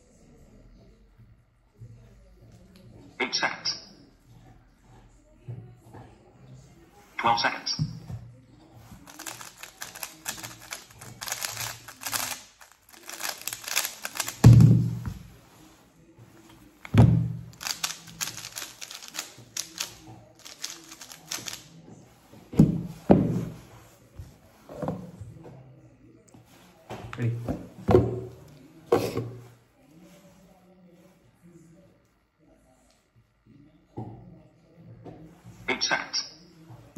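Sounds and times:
puzzle cube clacking: 9.0s - 15.2s, 17.5s - 21.7s.

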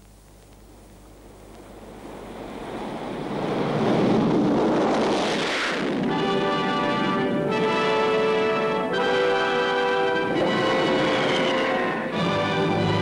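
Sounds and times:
propeller aircraft passing overhead: 1.7s - 13.0s
music with held chords: 6.1s - 13.0s.

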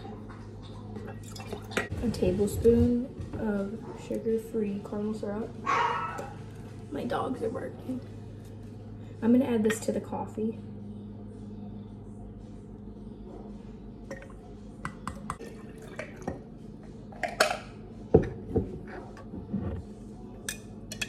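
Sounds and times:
steady low hum: 0.0s - 21.0s
coffee pouring into glass jar: 0.3s - 1.9s, 15.1s - 16.4s.

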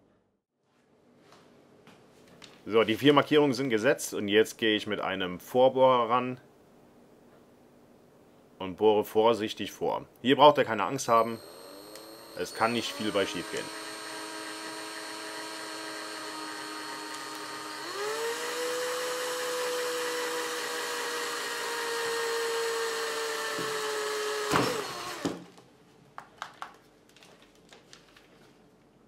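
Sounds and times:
cordless drill motor whining: 10.9s - 25.4s.

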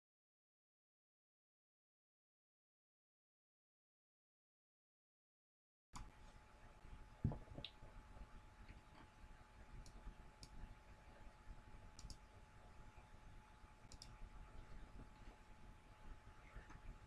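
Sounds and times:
computer mouse clicks: 9.8s - 10.7s, 11.9s - 12.3s, 13.8s - 15.4s.

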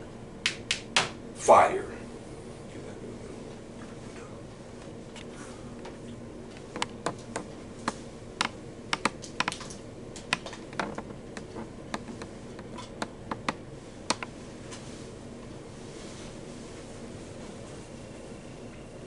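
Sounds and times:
steady low hum: 0.0s - 19.0s
sharp clicks: 6.7s - 14.3s.

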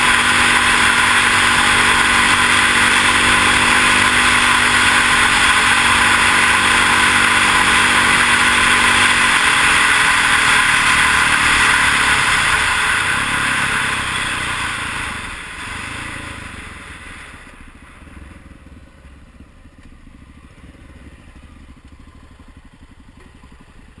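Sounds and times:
motorcycle engine running: 0.0s - 24.0s
wind and tyre noise: 0.0s - 24.0s.

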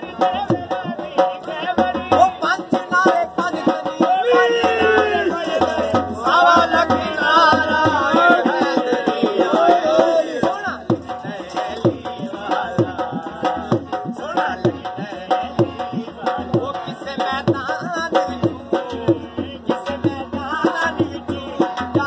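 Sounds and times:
fast driving drum beats: 0.0s - 22.0s.

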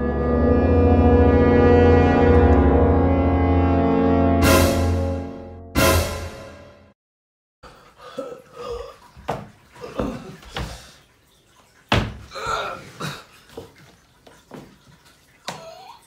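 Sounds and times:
sharp knocks and thumps: 11.9s - 12.3s.

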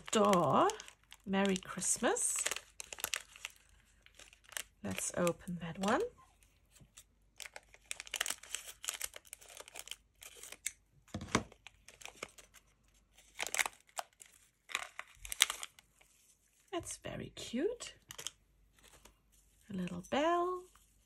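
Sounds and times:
scissors cutting plastic bag: 0.0s - 6.1s
plastic bag crinkling: 0.0s - 6.5s, 7.4s - 10.7s, 11.4s - 16.2s, 18.0s - 21.0s.

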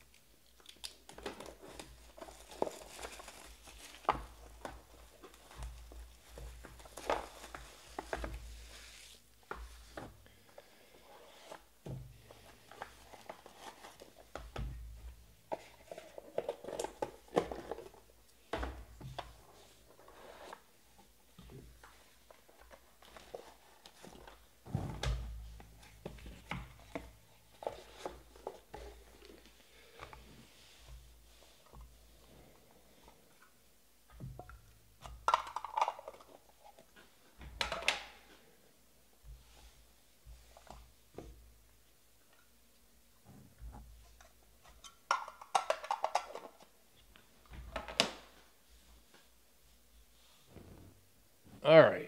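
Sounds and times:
card boxes and cases handled: 0.6s - 38.6s, 43.5s - 49.3s
heavy thump: 24.6s - 25.3s.

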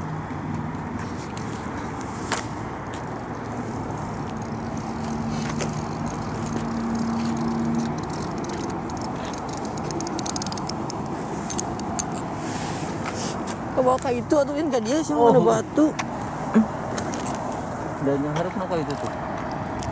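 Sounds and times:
low motor hum: 0.0s - 13.0s
outdoor background noise: 0.0s - 19.9s.

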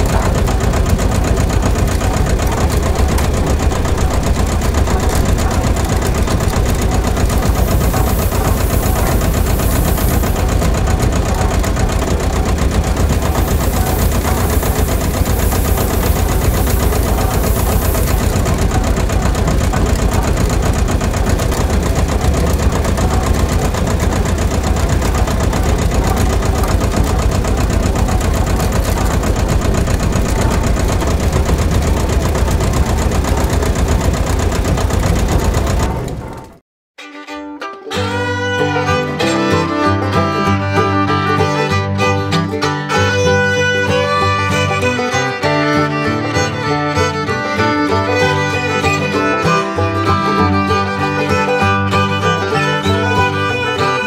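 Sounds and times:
diesel engine idling: 0.0s - 36.6s.

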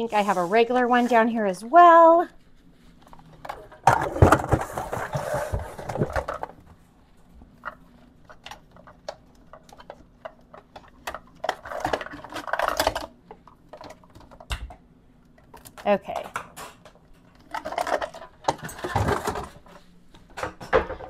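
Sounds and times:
metal objects clattering: 17.3s - 19.6s.

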